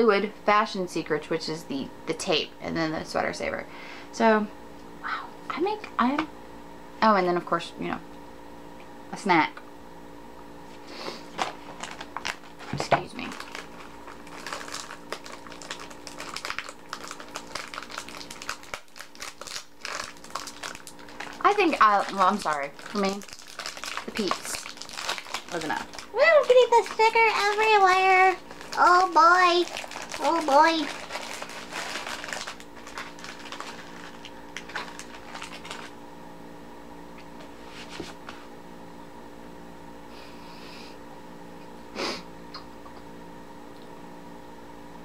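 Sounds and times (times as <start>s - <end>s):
faint room hum: 0.0s - 45.0s
snack packaging crinkling: 11.2s - 36.0s.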